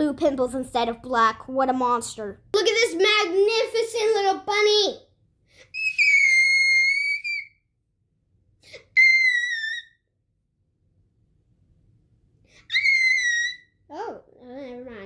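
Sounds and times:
girl squealing: 5.6s - 7.6s, 8.7s - 10.0s, 12.6s - 14.2s.

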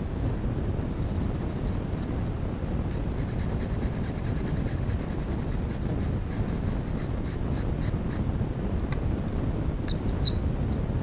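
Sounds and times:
steady low rumble: 0.0s - 11.0s
toothbrush scrubbing plastic fan: 0.9s - 8.2s.

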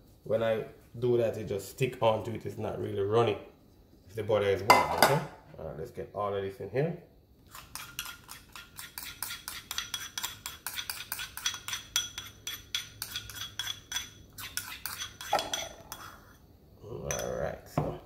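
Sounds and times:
spatula scraping ceramic bowl: 7.5s - 16.4s.

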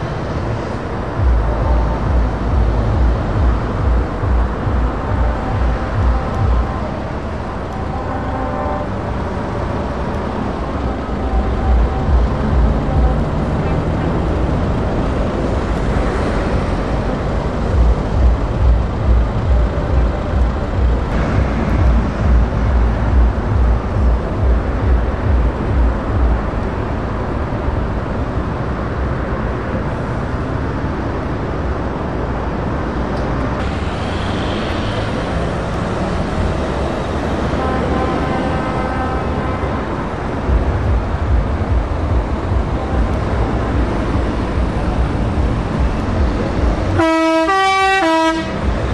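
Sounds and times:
lorry diesel engines throbbing: 0.0s - 48.9s
truck driving past: 8.9s - 31.6s.

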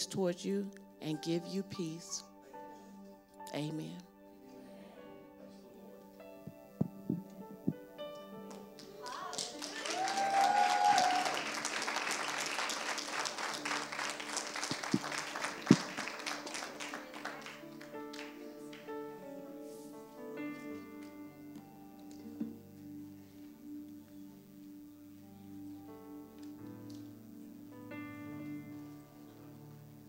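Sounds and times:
soft keyboard chords: 0.0s - 10.3s, 11.4s - 30.0s
congregation clapping: 8.5s - 19.0s.

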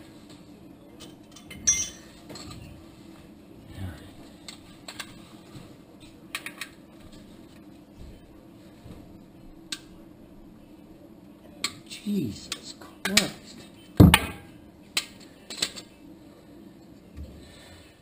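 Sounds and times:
metal hand tools clinking: 1.4s - 2.1s.

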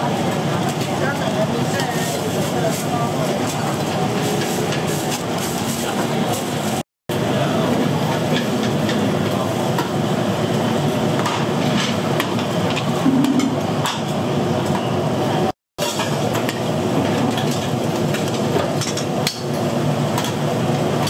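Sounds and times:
steady background noise: 0.0s - 21.0s
cookware and utensils clattering: 11.2s - 14.2s, 15.8s - 19.5s.

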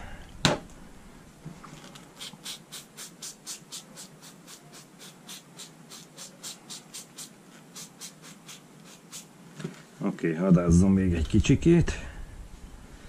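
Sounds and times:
spray bottle squirting hiss: 2.1s - 9.3s.

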